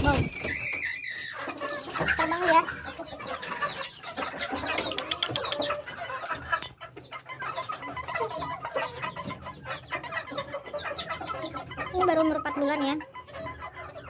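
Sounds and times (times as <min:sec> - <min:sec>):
chickens calling: 0:00.0 - 0:14.0.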